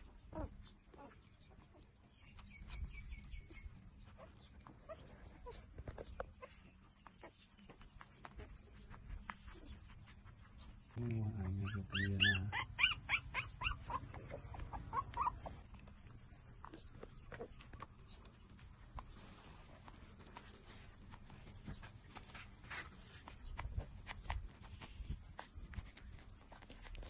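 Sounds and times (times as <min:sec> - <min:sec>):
puppies feeding and lapping: 0:00.0 - 0:27.0
puppy whimpers: 0:00.3 - 0:01.8, 0:04.1 - 0:07.6, 0:11.3 - 0:15.8.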